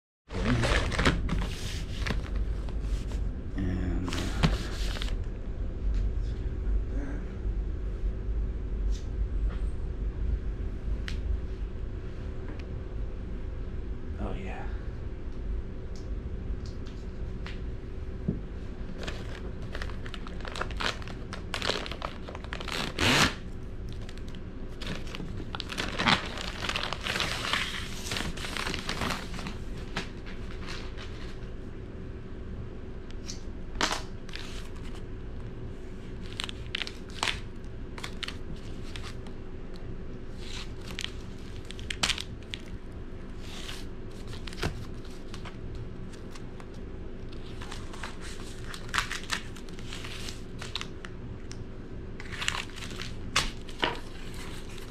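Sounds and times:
paper crinkling and tearing: 0:00.3 - 0:02.8, 0:04.0 - 0:05.2, 0:19.0 - 0:31.4, 0:33.8 - 0:35.0, 0:36.1 - 0:39.3, 0:40.3 - 0:51.1, 0:52.2 - 0:54.9.

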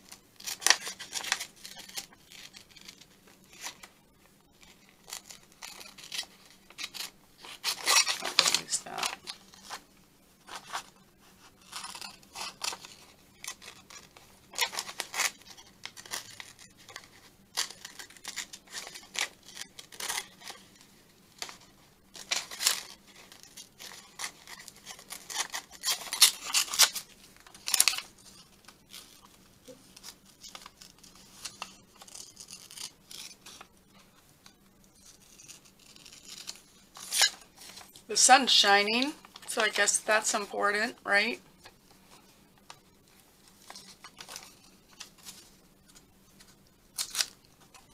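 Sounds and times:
scissors snipping paper: 0:11.6 - 0:20.8, 0:22.2 - 0:33.7, 0:35.0 - 0:37.9, 0:47.0 - 0:47.9.

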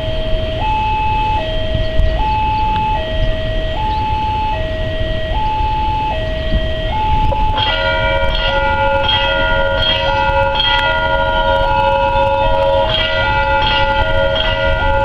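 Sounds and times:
electronic two-tone alarm: 0:00.0 - 0:15.0
warning bell ringing: 0:05.4 - 0:15.0.

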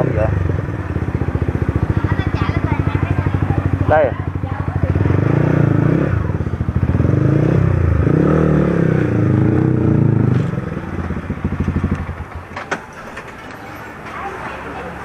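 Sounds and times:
motorcycle engine running: 0:00.0 - 0:12.6.

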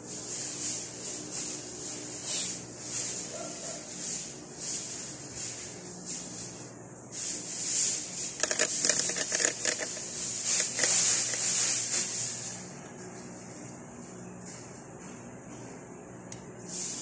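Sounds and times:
rustling handling noise: 0:00.0 - 0:15.2
steady high hiss: 0:07.1 - 0:12.8.

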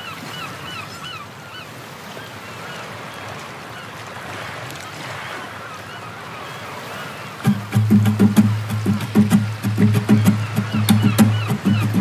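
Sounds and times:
waves washing with surf hiss: 0:00.0 - 0:12.0
birds honking: 0:05.7 - 0:12.0.

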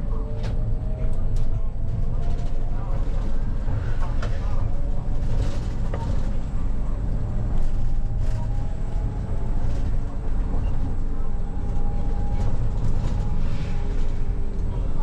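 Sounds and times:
bus engine and road rumble: 0:00.0 - 0:15.0.

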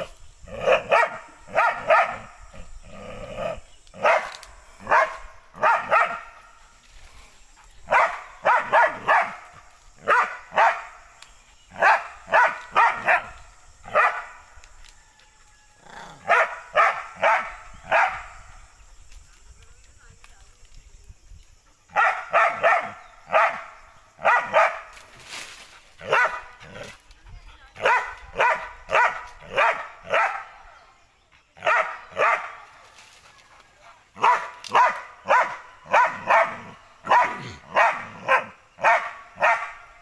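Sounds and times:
dog barking: 0:00.6 - 0:02.3, 0:04.0 - 0:06.4, 0:07.9 - 0:11.0, 0:11.8 - 0:13.3, 0:13.9 - 0:14.4, 0:16.2 - 0:18.4, 0:21.9 - 0:24.9, 0:26.0 - 0:26.8, 0:27.8 - 0:30.6, 0:31.6 - 0:32.6, 0:34.2 - 0:39.9.

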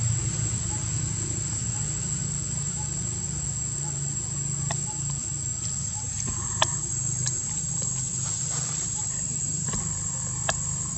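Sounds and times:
high-pitched insect drone: 0:00.0 - 0:10.9
low steady hum: 0:00.0 - 0:10.9
dry leaves and twigs clicking: 0:05.6 - 0:10.8.

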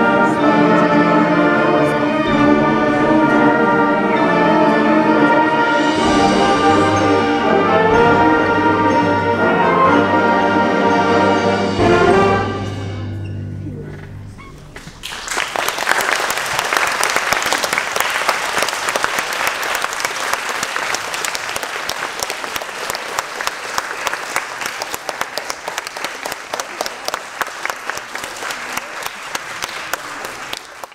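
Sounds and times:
concert band chord: 0:00.0 - 0:14.2
audience applauding: 0:14.8 - 0:30.9.

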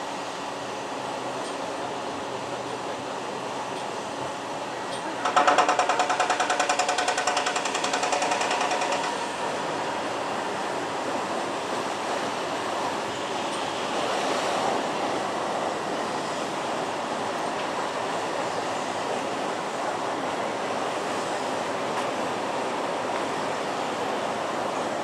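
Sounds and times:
rapid hammering on steel: 0:05.2 - 0:09.3.

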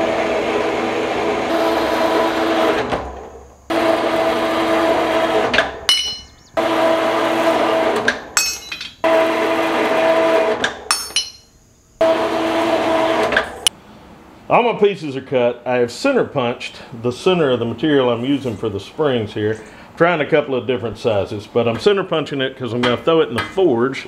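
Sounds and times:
steel pieces clinking together: 0:05.9 - 0:06.4, 0:08.4 - 0:09.0, 0:10.9 - 0:11.6.

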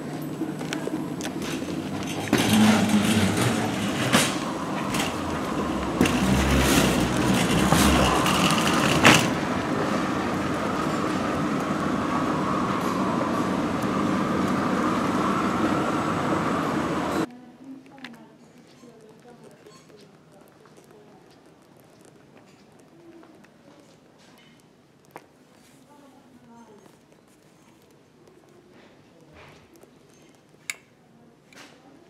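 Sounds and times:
wire shopping trolley rattling: 0:00.0 - 0:17.3
trolley wheels rolling: 0:00.0 - 0:28.6.

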